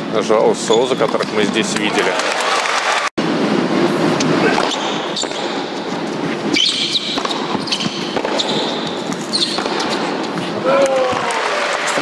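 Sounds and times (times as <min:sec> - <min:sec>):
tennis ball hit by rackets: 0:06.6 - 0:10.4.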